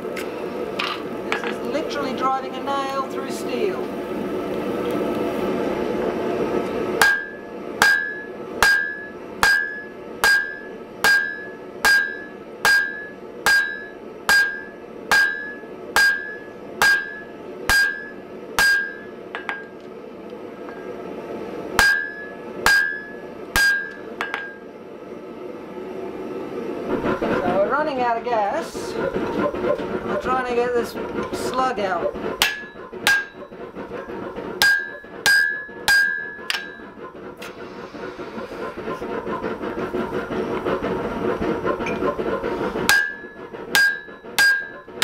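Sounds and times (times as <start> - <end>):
hammer blows on hot metal: 7.0 - 19.7, 21.8 - 24.6, 28.8 - 40.8, 41.6 - 45.0.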